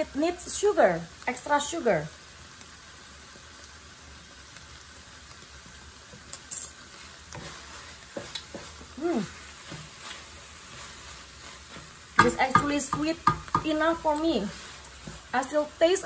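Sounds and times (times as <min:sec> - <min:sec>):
jam sizzling: 0:00.0 - 0:16.0
wooden spatula scraping a wok: 0:06.0 - 0:16.0
spatula knocking against pan: 0:12.2 - 0:14.0.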